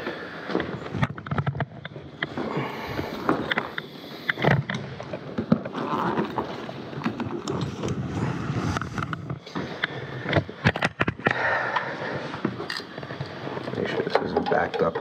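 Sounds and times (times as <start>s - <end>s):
rustling of bags: 0.0s - 11.4s
tools clunking on concrete: 12.5s - 15.0s.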